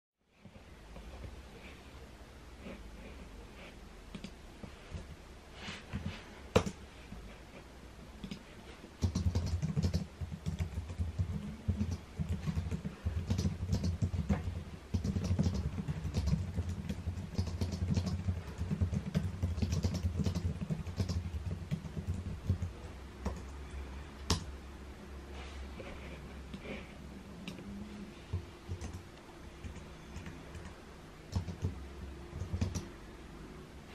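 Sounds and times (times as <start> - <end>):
computer keyboard typing: 8.2 - 8.4, 9.0 - 24.5, 28.3 - 32.9.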